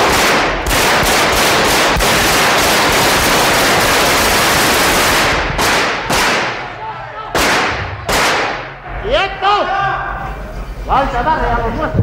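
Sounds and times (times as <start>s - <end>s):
automatic gunfire echoing: 0.0s - 6.7s, 7.4s - 8.8s.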